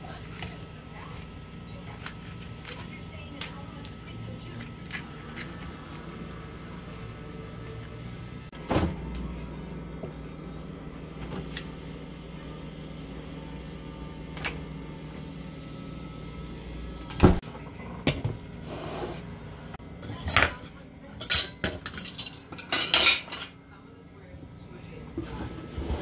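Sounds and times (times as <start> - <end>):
refrigerator door thump: 8.6 - 9.1.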